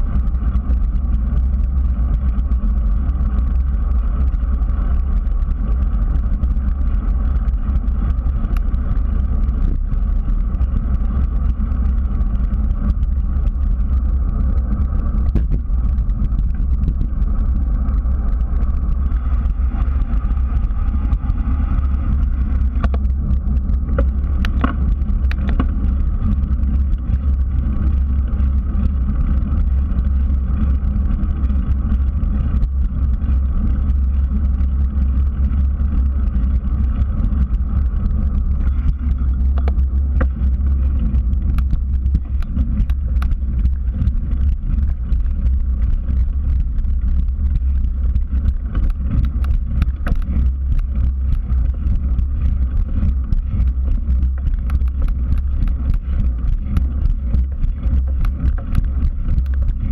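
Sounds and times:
bicycle tyre noise: 0:00.0 - 0:59.9
wind buffeting microphone: 0:00.0 - 0:59.9
bike clicks and knocks: 0:14.3 - 0:19.4, 0:21.8 - 0:31.4, 0:38.4 - 0:59.9.

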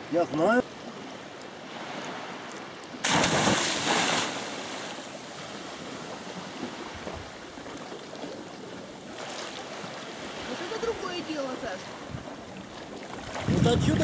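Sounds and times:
churning and lapping water: 0:00.0 - 0:14.0
loud splash into water: 0:03.0 - 0:05.0.

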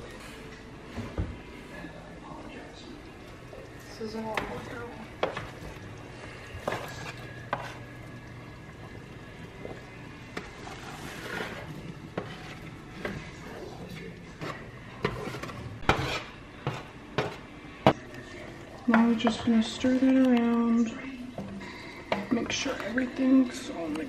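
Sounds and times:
spatula scraping baking sheet: 0:06.6 - 0:07.9, 0:10.4 - 0:13.2, 0:14.4 - 0:17.5.

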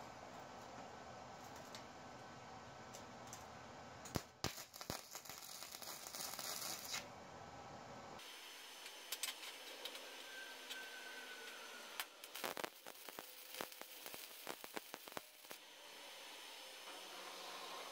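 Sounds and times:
welding arc crackling: 0:04.1 - 0:07.0, 0:12.0 - 0:15.6.

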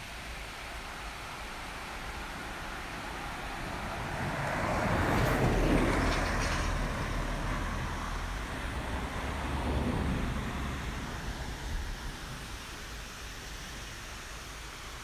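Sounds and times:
road vehicle passing: 0:02.4 - 0:12.6
steady hiss: 0:06.7 - 0:15.0.

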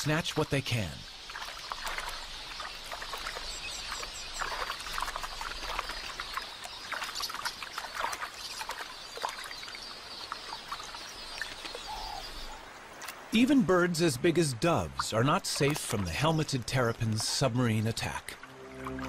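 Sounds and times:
splashing in shallow water: 0:00.0 - 0:13.8, 0:14.6 - 0:19.0
birds squeaking and chirping: 0:00.1 - 0:12.8.

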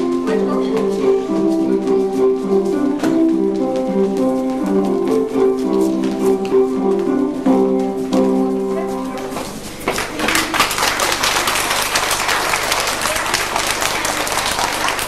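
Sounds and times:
audience applauding: 0:09.4 - 0:15.0.

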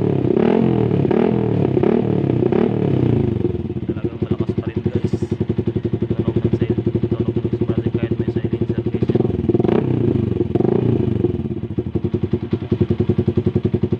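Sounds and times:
motorcycle engine idling: 0:00.0 - 0:13.9
motorcycle engine revving: 0:00.0 - 0:13.9.

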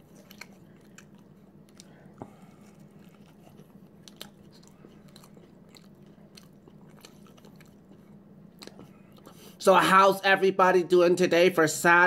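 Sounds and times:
chewing soft food: 0:00.0 - 0:09.6
steady low hum: 0:00.0 - 0:12.0.

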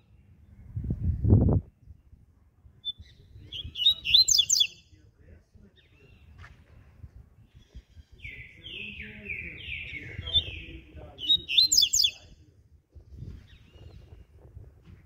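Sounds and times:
bird singing whistled notes: 0:02.8 - 0:04.9, 0:07.4 - 0:12.4.

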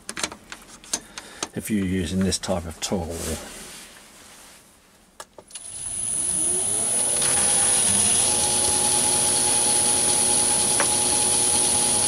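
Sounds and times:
lathe motor running: 0:05.6 - 0:12.0.

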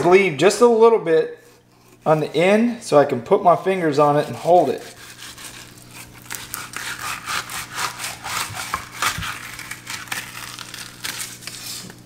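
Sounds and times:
knife scraping fish skin on board: 0:01.4 - 0:02.3, 0:03.5 - 0:12.0.

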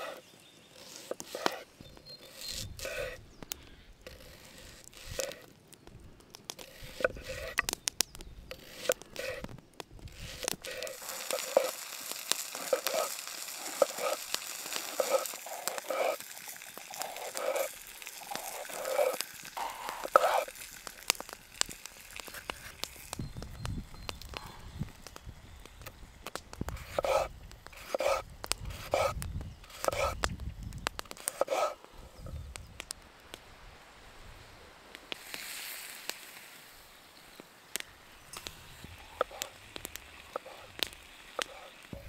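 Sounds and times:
crackling crunching handling: 0:00.0 - 0:33.5, 0:34.9 - 0:42.0
even hiss: 0:10.1 - 0:42.0.

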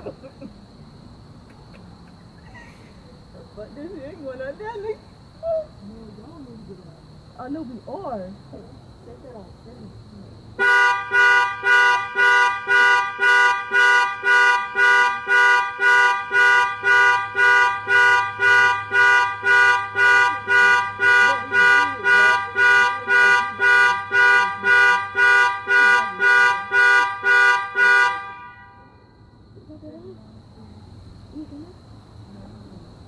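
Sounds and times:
car horn honking pulses: 0:10.6 - 0:29.1.

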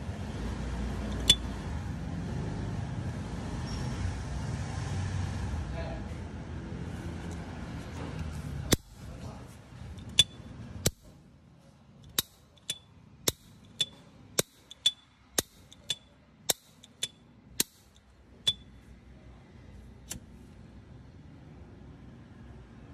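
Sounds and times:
high metallic ring of lighter: 0:01.1 - 0:01.5, 0:10.0 - 0:11.1, 0:12.1 - 0:17.9, 0:18.5 - 0:18.8
lighter lid clicking open and shut: 0:12.1 - 0:17.8.

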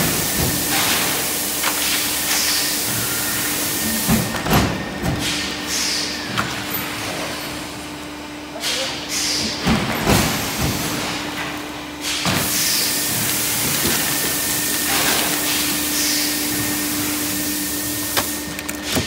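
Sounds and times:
steady machine hum: 0:00.0 - 0:19.0.

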